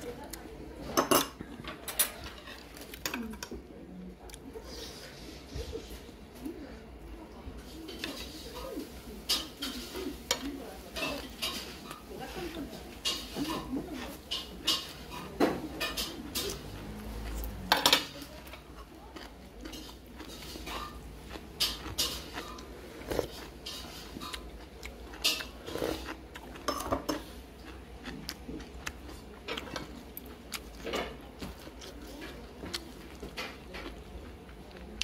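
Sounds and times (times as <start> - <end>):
chopsticks and dishes clinking: 0.8 - 3.5, 7.9 - 27.4, 29.0 - 34.0.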